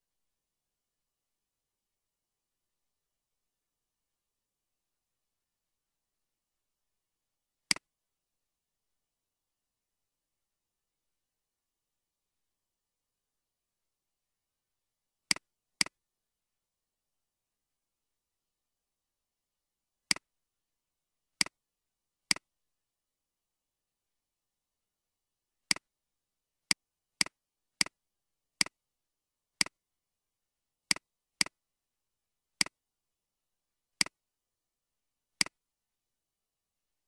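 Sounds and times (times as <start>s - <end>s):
mouse and keyboard clicks: 15.3s - 16.0s, 22.3s - 22.5s, 25.7s - 25.9s, 29.6s - 29.8s, 30.9s - 31.6s, 35.4s - 35.6s.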